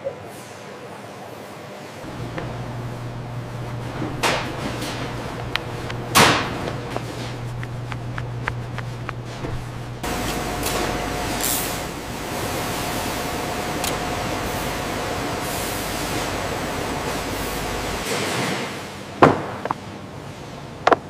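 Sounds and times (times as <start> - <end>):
steady low hum: 2.0 - 18.2
light taps: 5.4 - 9.7
factory hiss: 10.0 - 19.2.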